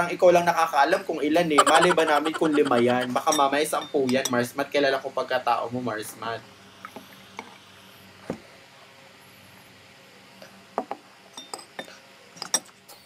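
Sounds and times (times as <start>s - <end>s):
dishes clinking: 11.4s - 12.7s.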